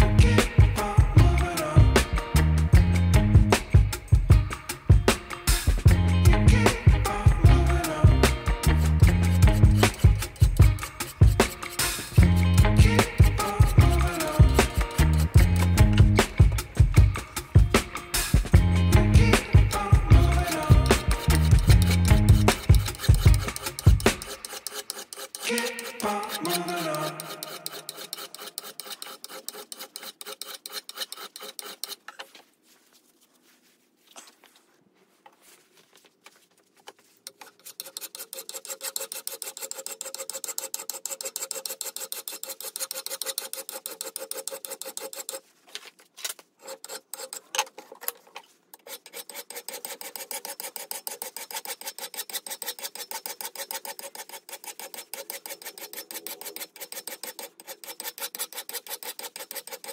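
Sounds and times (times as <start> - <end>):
file rasping on steel edge: 8.6 - 16.6, 19.4 - 32.3, 37.2 - 45.5, 46.3 - 47.9, 48.7 - 59.9.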